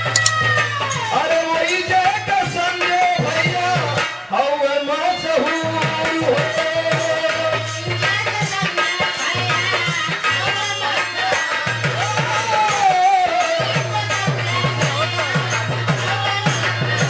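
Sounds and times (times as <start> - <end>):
hand drums beating: 0.0 - 0.6.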